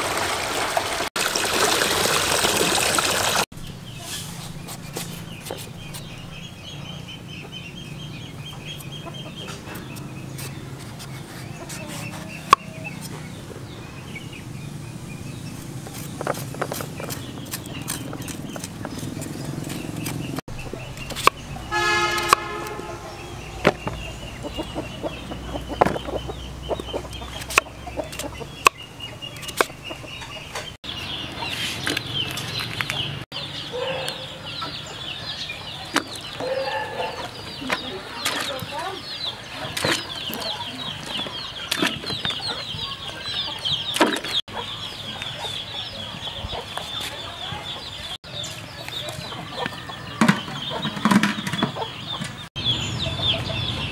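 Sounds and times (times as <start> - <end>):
chickens clucking: 3.9 - 14.4, 15.4 - 53.9.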